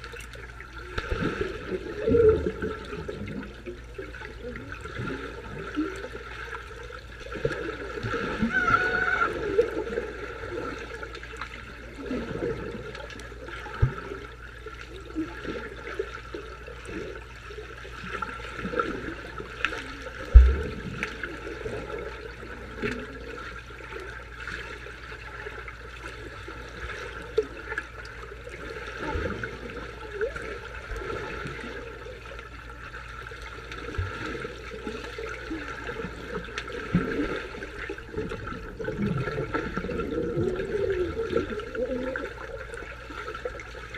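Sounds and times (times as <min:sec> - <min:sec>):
underwater sloshing and bubbling: 0:00.0 - 0:43.9
sharp underwater thumps: 0:20.2 - 0:21.1.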